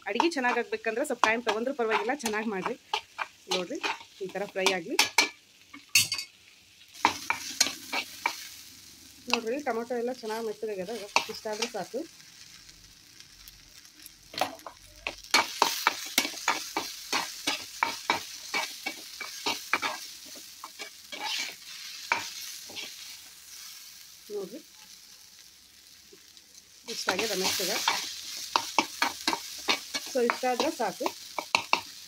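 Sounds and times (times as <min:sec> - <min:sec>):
masala sizzling in oil: 0:00.0 - 0:32.0
utensil scraping a pan: 0:00.2 - 0:05.3, 0:20.6 - 0:22.9.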